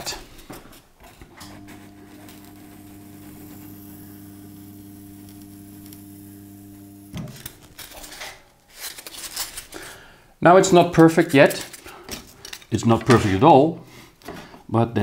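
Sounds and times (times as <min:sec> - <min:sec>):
hot wire foam cutter humming: 0:01.4 - 0:08.1.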